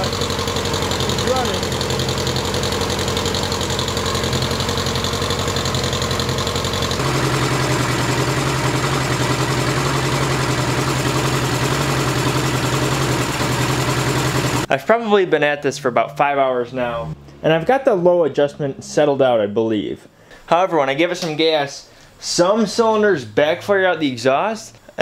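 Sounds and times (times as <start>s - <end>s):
motorcycle engine idling: 0.0s - 14.7s.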